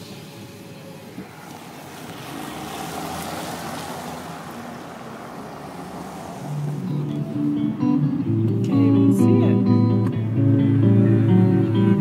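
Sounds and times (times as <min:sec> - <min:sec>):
wind and tyre noise through car window: 0:00.0 - 0:07.1.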